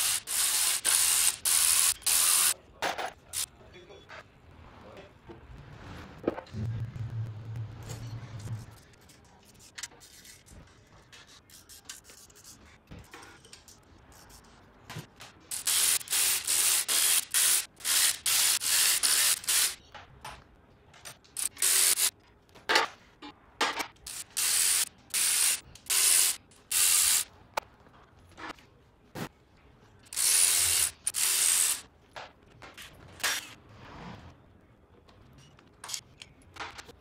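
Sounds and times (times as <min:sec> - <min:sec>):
ratchet wrench ratcheting: 0:30.1 - 0:31.9.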